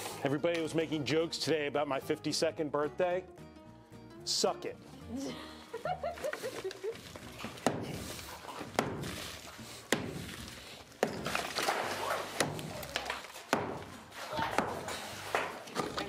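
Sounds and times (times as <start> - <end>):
concrete chunks cracking and falling: 8.9 - 13.5
sharp knocks on concrete wall: 13.5 - 14.8.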